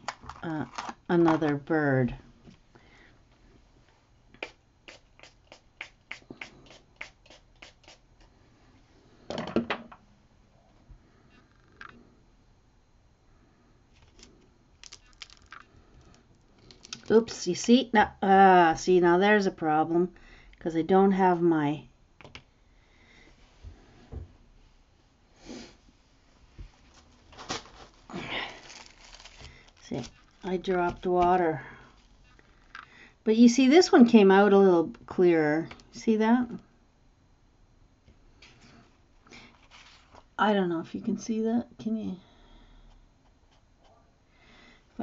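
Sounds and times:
short breath: 44.3s - 44.9s.

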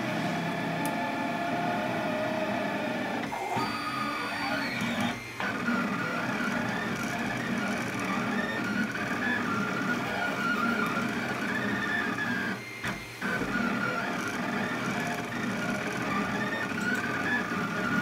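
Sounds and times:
three d printer stepper motors: 0.5s - 18.0s.

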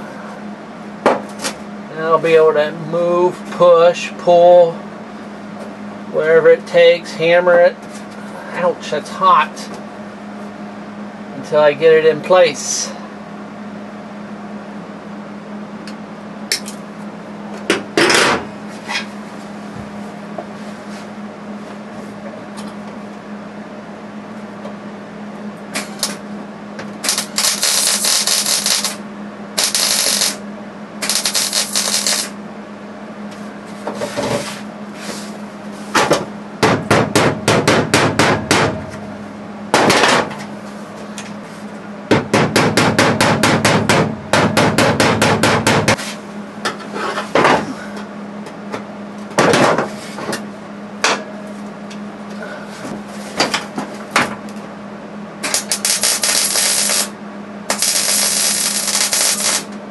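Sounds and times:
steady low hum: 0.0s - 59.9s
welding crackle: 27.0s - 29.0s, 29.6s - 30.4s, 31.0s - 32.4s, 55.5s - 59.8s
hammer strikes on sheet metal: 36.0s - 38.9s, 42.1s - 46.0s.

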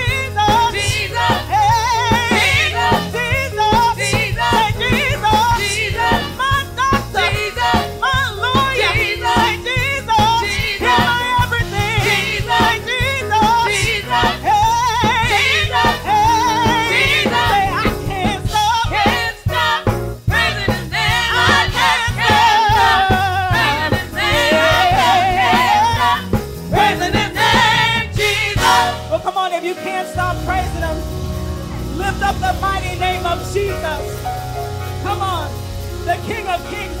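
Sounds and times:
steady bass line: 0.0s - 29.3s, 30.2s - 37.0s
gospel singing with vibrato: 0.0s - 37.0s
instrumental accompaniment: 0.0s - 37.0s.

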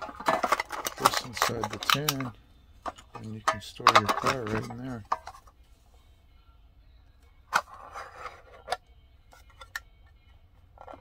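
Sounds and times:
metal tin clicking: 0.0s - 5.5s, 9.4s - 9.9s.

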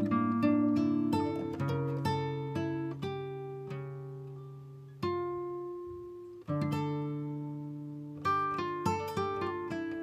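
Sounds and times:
plucked acoustic guitar: 0.0s - 10.0s.

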